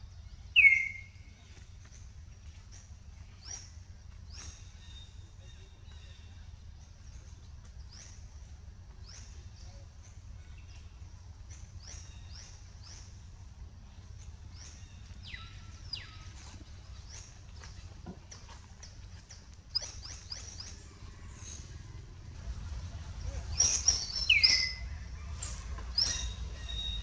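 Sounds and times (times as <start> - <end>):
low steady rumble: 0.0 - 27.0.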